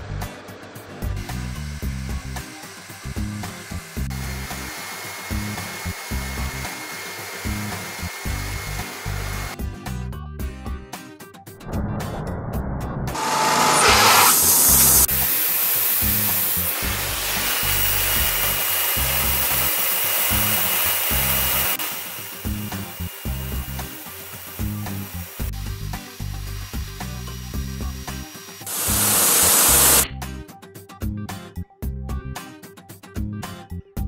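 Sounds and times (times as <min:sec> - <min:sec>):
background music with bass line: 0:00.0 - 0:06.7, 0:07.5 - 0:13.2, 0:24.6 - 0:34.0
band saw blade cutting log: 0:00.4 - 0:09.6, 0:13.2 - 0:27.2, 0:28.1 - 0:30.0.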